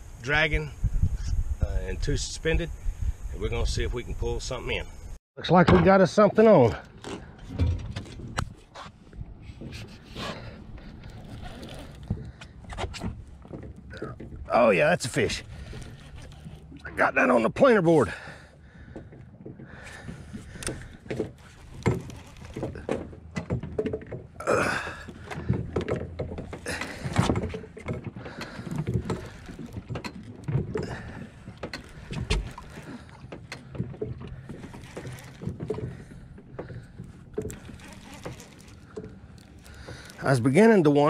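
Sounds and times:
fishing reel cranking: 0:11.1 - 0:12.2, 0:15.0 - 0:16.8, 0:34.2 - 0:41.0
clicks and knocks of rod handling: 0:25.1 - 0:41.0.

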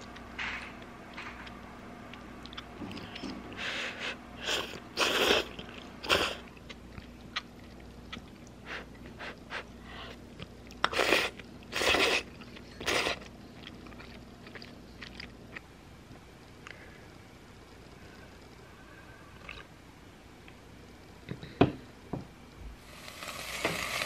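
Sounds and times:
person chewing: 0:01.4 - 0:03.3, 0:10.4 - 0:15.7, 0:19.4 - 0:19.7
person slurping noodles: 0:04.4 - 0:06.4.

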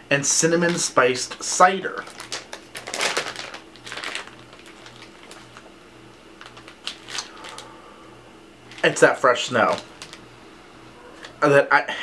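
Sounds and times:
plastic packaging crinkling: 0:00.5 - 0:07.7, 0:08.6 - 0:10.3.

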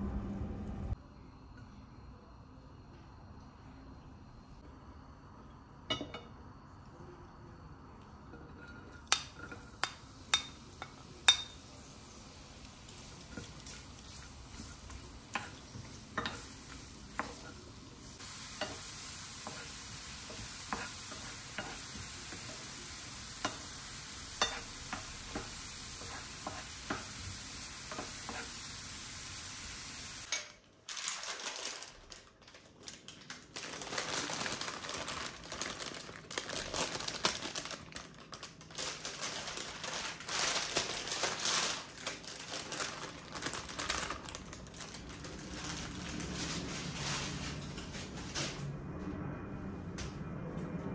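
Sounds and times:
wooden spoon tapping a pan: 0:09.1 - 0:11.6
vegetables sizzling in oil: 0:09.1 - 0:30.3
crackly rustle of baking paper: 0:10.4 - 0:23.1, 0:30.8 - 0:48.8.

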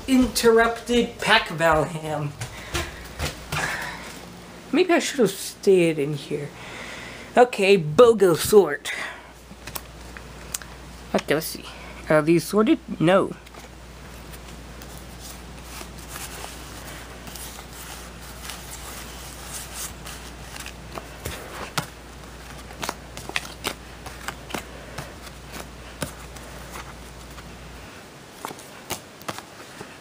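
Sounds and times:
playing cards shuffled and dealt: 0:13.4 - 0:27.5, 0:28.4 - 0:30.0.

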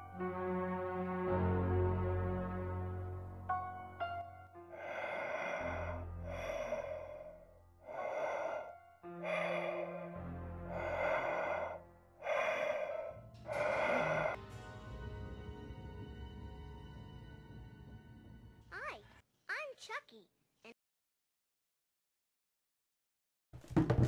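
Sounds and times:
low droning horror music: 0:00.0 - 0:18.7
heavy slow breathing: 0:04.6 - 0:14.4.

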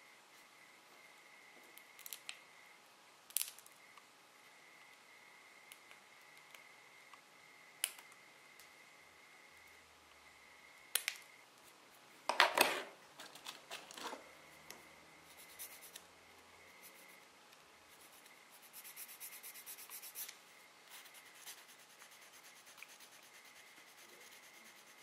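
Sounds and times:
nail file scratching: 0:15.3 - 0:16.0, 0:18.0 - 0:20.4, 0:21.0 - 0:25.0.

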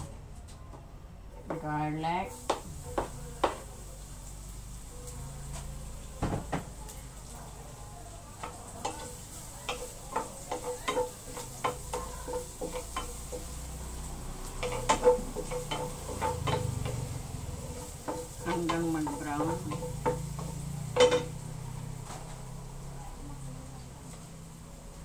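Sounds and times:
garlic sizzling: 0:01.2 - 0:25.0
spatula knocking against pan: 0:02.4 - 0:03.7, 0:08.4 - 0:13.6, 0:14.6 - 0:17.1, 0:18.0 - 0:21.4
spatula scraping frying pan: 0:08.4 - 0:22.3.

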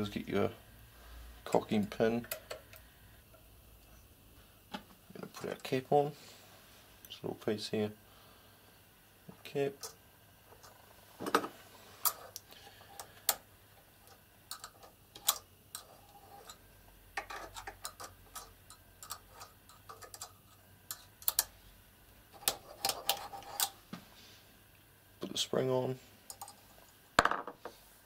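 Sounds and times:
small steel parts clicking: 0:14.0 - 0:16.6, 0:17.2 - 0:21.5, 0:26.3 - 0:26.6.

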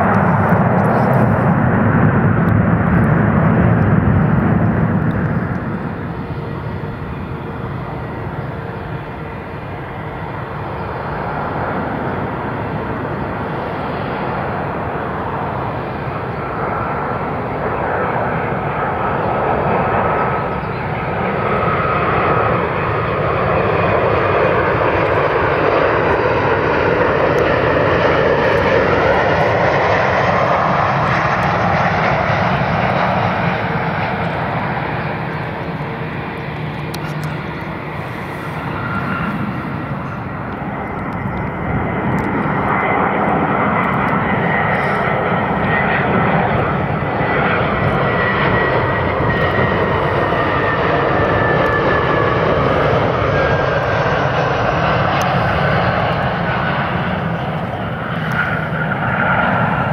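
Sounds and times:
jet airliner engines: 0:00.0 - 0:59.9.

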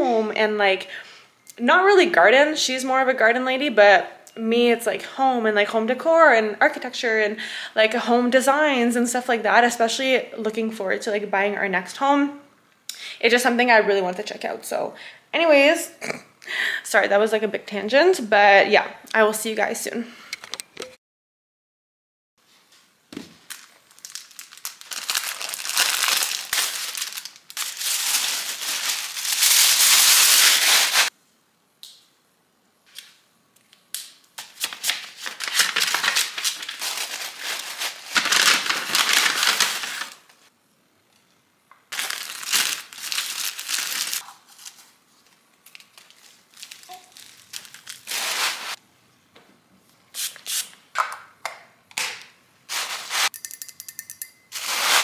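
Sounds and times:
tissue paper crinkling: 0:23.4 - 0:31.1, 0:34.6 - 0:40.4, 0:41.9 - 0:48.8.

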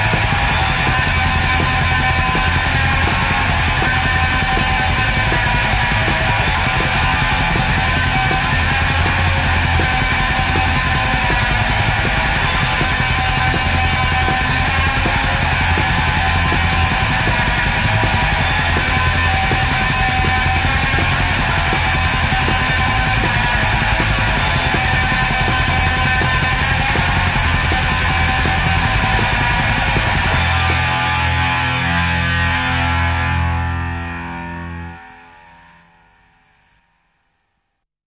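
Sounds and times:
heavy metal music with guitar: 0:00.0 - 0:35.8.

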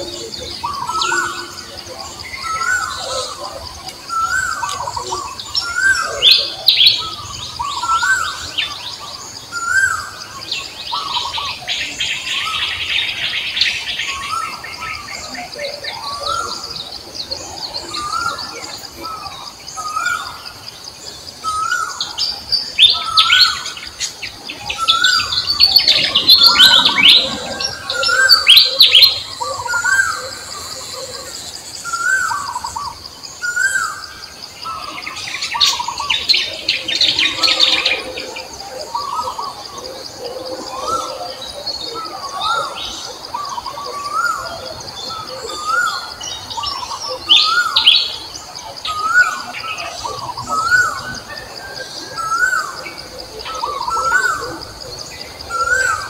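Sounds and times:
birds chirping and trilling: 0:00.0 - 0:56.0
bird repeating rising call: 0:22.8 - 0:35.0.

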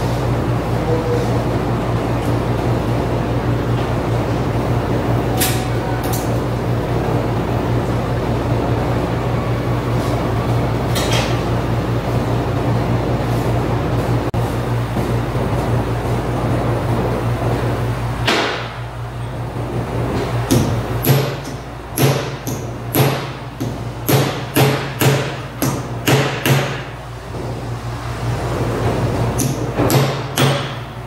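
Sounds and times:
steady low hum: 0:00.0 - 0:31.0
hammer striking metal: 0:20.5 - 0:26.9, 0:29.4 - 0:30.9.

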